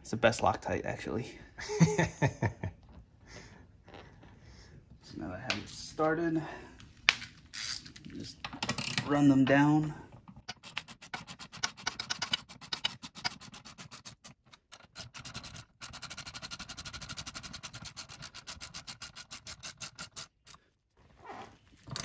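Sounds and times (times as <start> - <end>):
socket ratchet clicking: 10.5 - 13.7.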